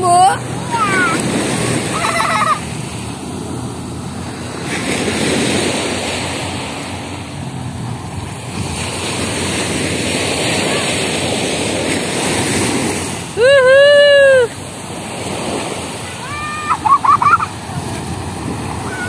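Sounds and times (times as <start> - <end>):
waves breaking on beach: 0.0 - 19.0.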